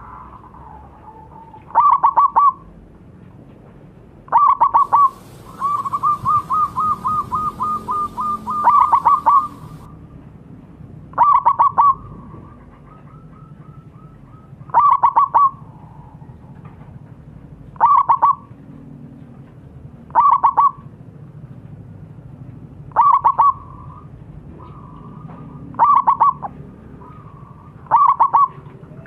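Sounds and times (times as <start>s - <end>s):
dove staccato cooing: 4.3s - 9.9s, 24.6s - 29.0s.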